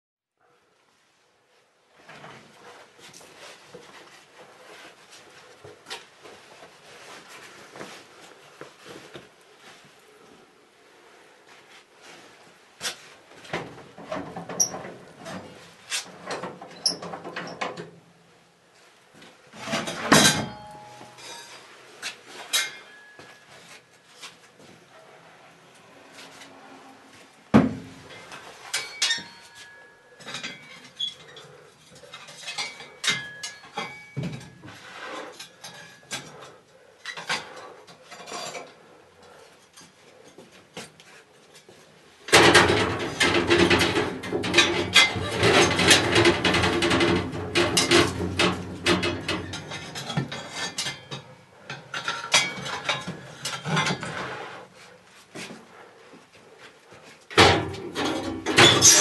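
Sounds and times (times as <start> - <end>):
metal clinks and knocks: 28.1 - 34.7, 42.3 - 54.0.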